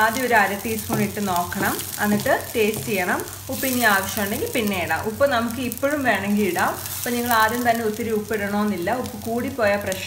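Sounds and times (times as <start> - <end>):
vegetables sizzling in a frying pan: 0.0 - 10.0
wooden spatula stirring: 0.4 - 4.1.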